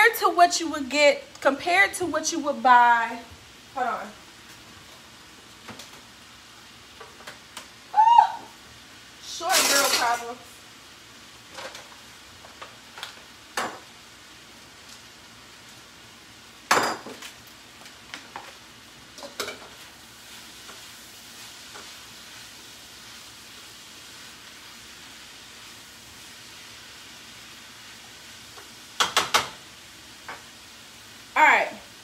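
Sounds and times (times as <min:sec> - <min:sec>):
vegetables sizzling in a pan: 0:00.0 - 0:32.0
utensil knocking in a pan: 0:29.0 - 0:29.6.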